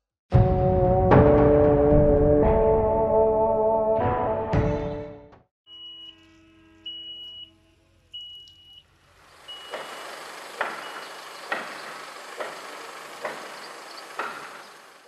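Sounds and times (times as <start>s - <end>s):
high warning beeper: 5.7s - 7.6s
crane machine hum: 5.7s - 15.0s
crane knocking: 9.5s - 15.0s.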